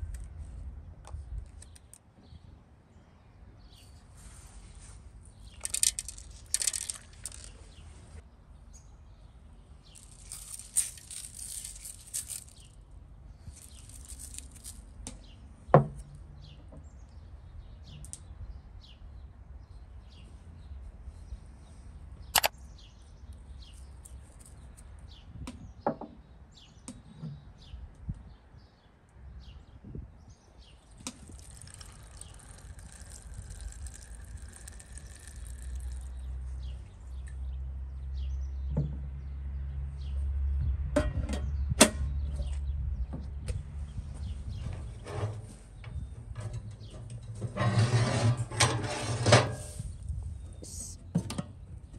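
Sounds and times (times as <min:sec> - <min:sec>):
water pouring into pot: 0:31.0 - 0:36.1.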